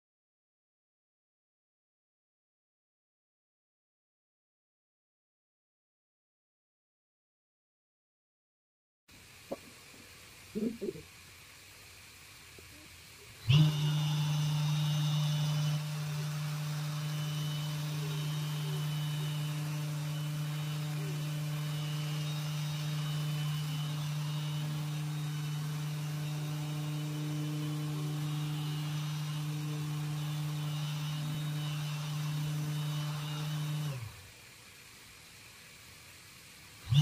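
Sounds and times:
orbital sander running: 13.3 - 34.4, 36.8 - 37.0.

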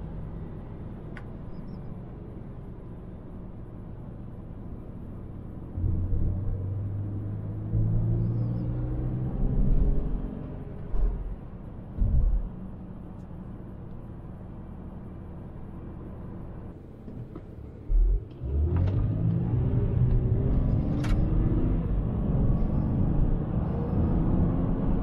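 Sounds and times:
road rumble: 0.0 - 25.0
low thump: 11.9 - 12.6
car engine accelerating: 17.1 - 25.0.

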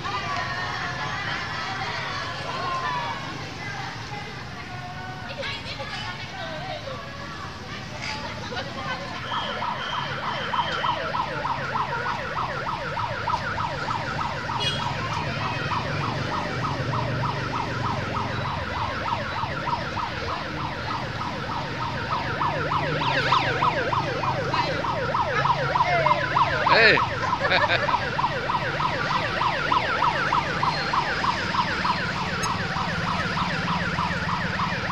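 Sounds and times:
electronic siren yelping: 9.2 - 34.9.

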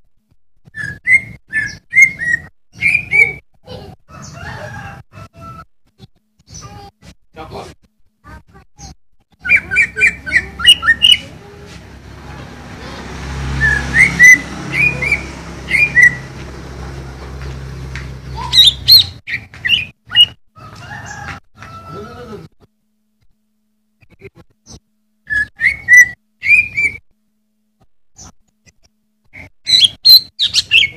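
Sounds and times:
bird chirping and whistling: 0.7 - 3.4, 9.4 - 11.3, 13.6 - 16.3, 18.3 - 20.4, 25.2 - 27.0, 29.4 - 30.9.

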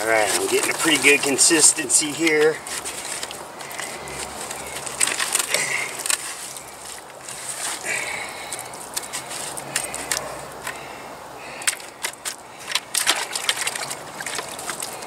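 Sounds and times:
stick stirring cement in bucket: 0.0 - 8.0.

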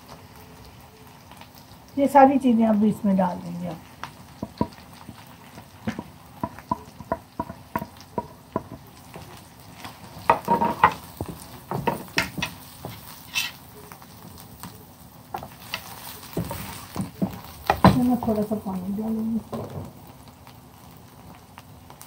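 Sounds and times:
faint sizzle: 0.0 - 22.0
spatula tapping and scraping pan: 4.4 - 13.6, 15.4 - 18.5.

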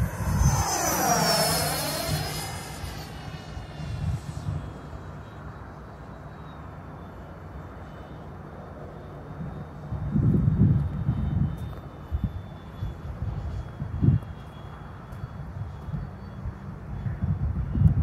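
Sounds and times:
low rumble: 0.0 - 5.2
model jet whine: 0.0 - 18.0.

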